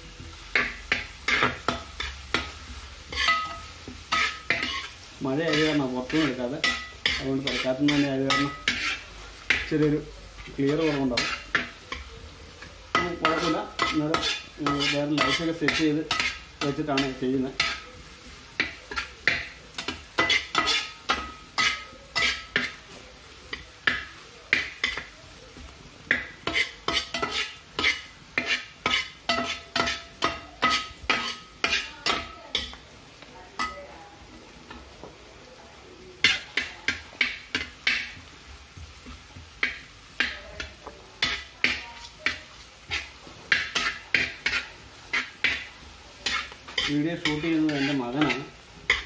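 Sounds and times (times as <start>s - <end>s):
onions sizzling: 0.0s - 49.0s
metal spoon clinking on a pan: 0.5s - 18.0s, 18.6s - 22.8s, 23.5s - 25.2s, 26.1s - 32.8s, 33.6s - 33.9s, 39.6s - 49.0s.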